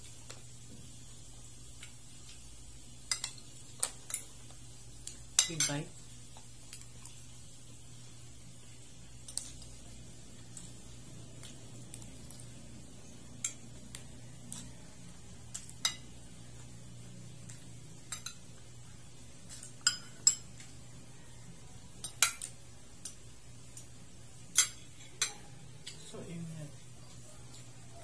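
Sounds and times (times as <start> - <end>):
cutlery clinking on a plate: 19.5 - 20.7.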